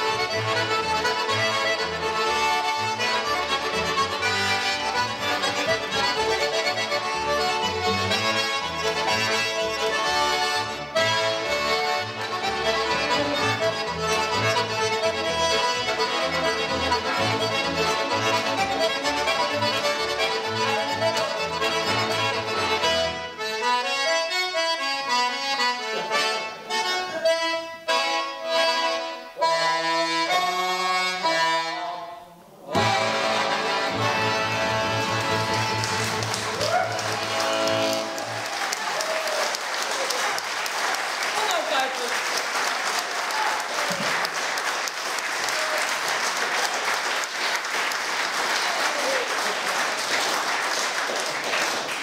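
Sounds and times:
accordion playing held chords: 0:00.0 - 0:38.5
folk band playing: 0:00.0 - 0:52.0
audience applauding: 0:34.8 - 0:52.0.

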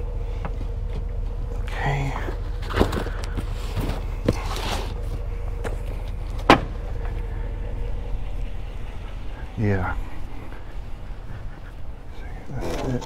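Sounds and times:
truck engine idling: 0:00.0 - 0:13.0
sharp knocks: 0:06.4 - 0:06.8.

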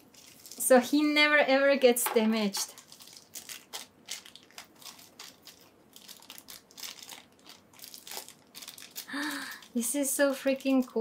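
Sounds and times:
packaging crinkling: 0:00.0 - 0:00.7, 0:02.4 - 0:09.9.

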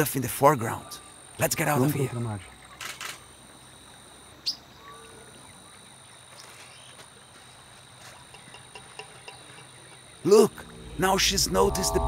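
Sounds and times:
bird chirping: 0:08.3 - 0:12.0
high-pitched insect drone: 0:08.8 - 0:12.0.

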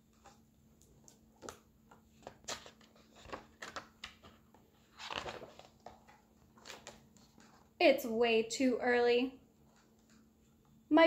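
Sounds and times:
paper rustling: 0:02.2 - 0:07.7.

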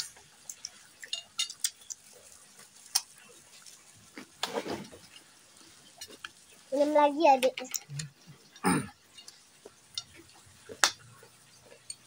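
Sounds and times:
chewing: 0:00.0 - 0:06.4, 0:07.7 - 0:12.0
chopsticks and fork clinking on plate: 0:01.0 - 0:01.8.

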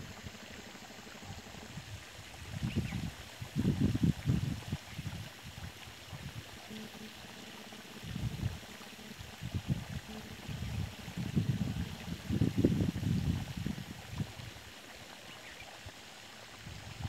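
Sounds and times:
wind buffeting microphone: 0:01.6 - 0:06.5, 0:09.4 - 0:14.6, 0:16.6 - 0:17.0.

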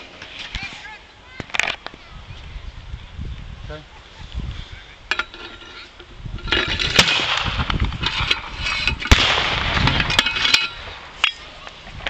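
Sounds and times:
pyrotechnic bangs: 0:06.8 - 0:11.5
blank gunfire cracks: 0:07.0 - 0:07.9, 0:09.1 - 0:10.0.

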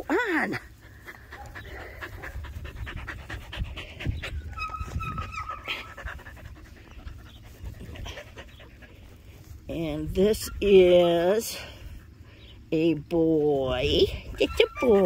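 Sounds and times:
dog panting: 0:00.4 - 0:09.7.

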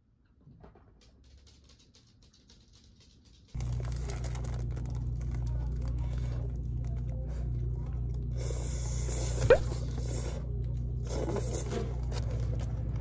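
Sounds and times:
steady low hum: 0:03.5 - 0:13.0
paper wrapper rustling: 0:03.6 - 0:07.0.

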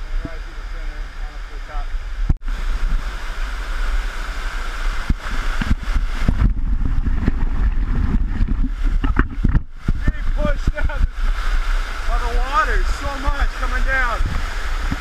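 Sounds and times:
deep buffeting rumble: 0:00.0 - 0:15.0
waterfall rushing and splashing: 0:00.0 - 0:15.0
knocks and splashes: 0:04.8 - 0:15.0.

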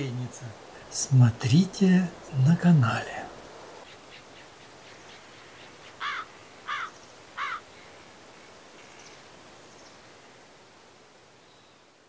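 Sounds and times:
faint outdoor background: 0:00.0 - 0:12.0
crow cawing: 0:05.4 - 0:07.7.

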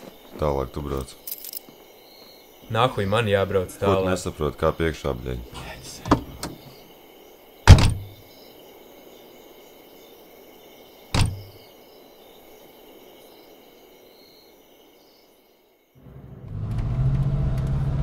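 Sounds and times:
faint background noise: 0:00.0 - 0:16.2
car doors shutting: 0:07.7 - 0:08.1, 0:11.2 - 0:11.5.

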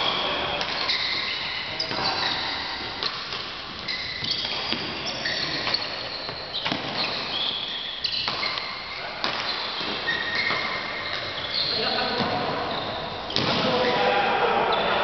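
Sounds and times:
shoes squeaking on hall floor: 0:00.0 - 0:15.0
racket hitting shuttlecock: 0:00.1 - 0:11.4, 0:13.3 - 0:13.8.

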